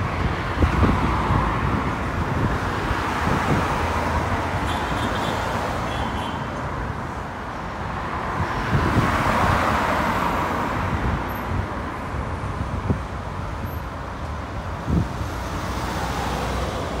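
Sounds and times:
car engines and tyres: 0.0s - 17.0s.

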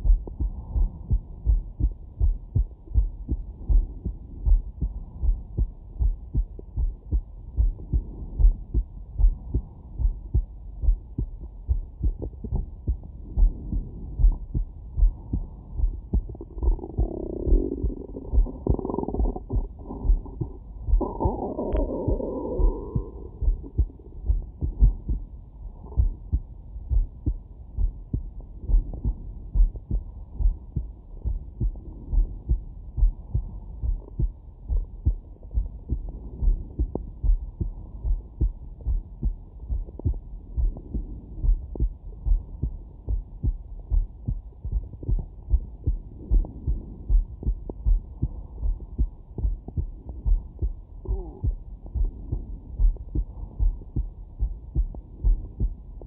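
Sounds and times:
muffled heartbeat: 0.0s - 56.0s.

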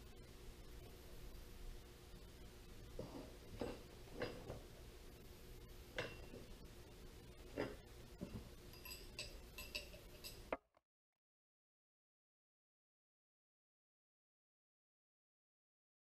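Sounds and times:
faint steady hum: 0.0s - 10.6s
ringing metallic clinks: 8.2s - 10.5s
clicks and taps of steel parts: 8.7s - 10.6s.

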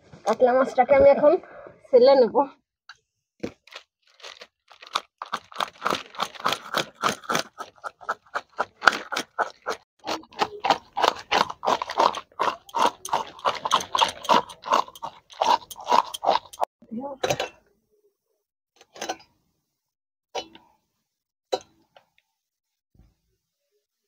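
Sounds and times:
metal tool scraping fish scales: 12.4s - 16.7s.

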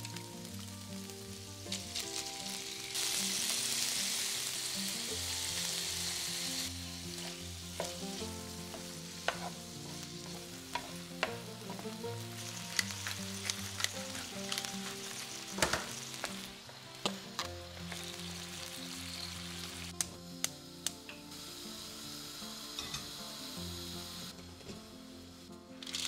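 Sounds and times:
food sizzling in oil: 0.0s - 26.0s
spatula tapping on pan: 7.8s - 9.6s, 10.7s - 11.8s.

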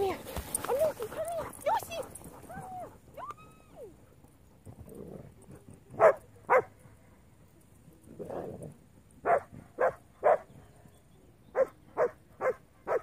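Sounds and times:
dog barking: 6.0s - 6.7s, 9.2s - 10.4s, 11.6s - 13.0s.

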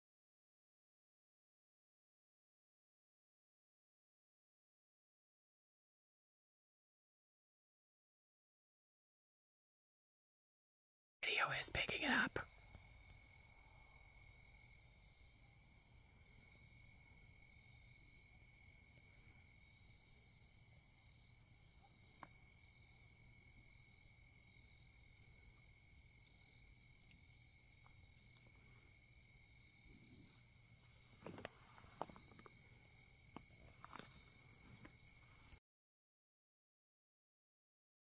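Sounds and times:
crickets trilling: 11.2s - 35.6s.

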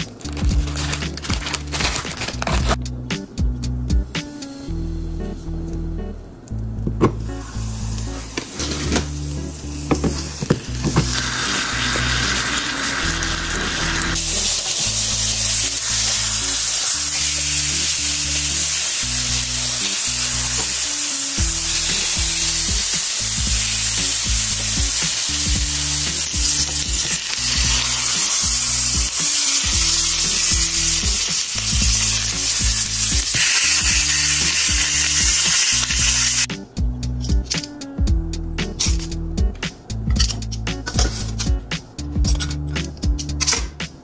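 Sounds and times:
background music with bass line: 0.0s - 44.0s
burger patties sizzling in oil: 7.6s - 36.5s.

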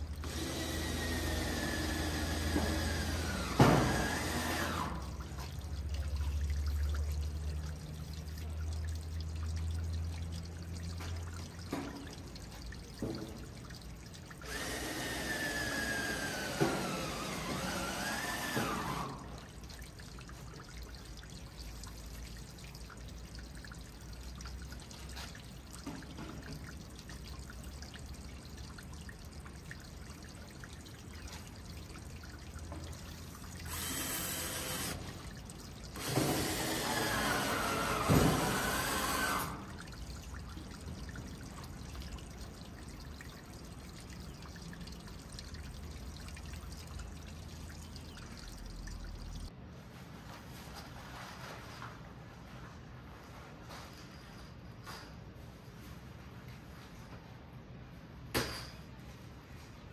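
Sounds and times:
water pouring: 0.0s - 49.5s.

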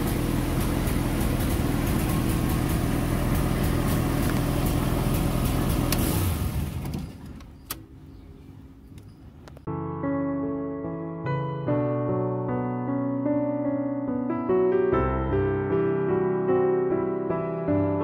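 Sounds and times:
car engine idling: 0.0s - 8.1s.

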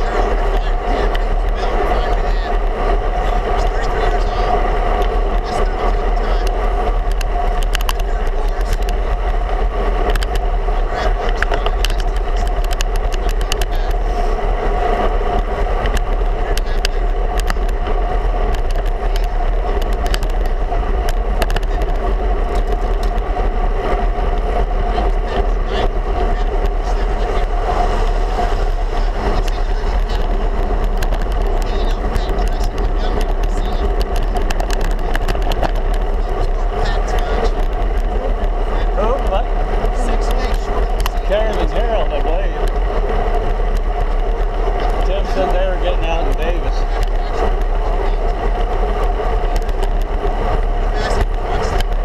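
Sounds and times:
bike tyre noise on road: 0.0s - 52.0s
rushing wind: 0.0s - 52.0s.

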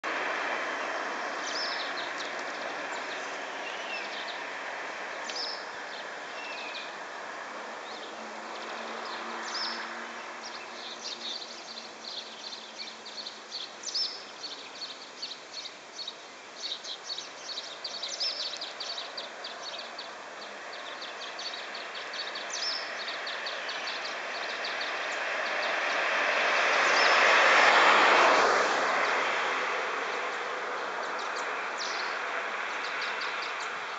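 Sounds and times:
steady outdoor hiss: 0.0s - 33.9s
small birds chirping: 0.1s - 7.0s, 7.8s - 27.3s, 30.1s - 33.9s
vehicle passing: 7.0s - 12.2s, 20.5s - 33.9s.

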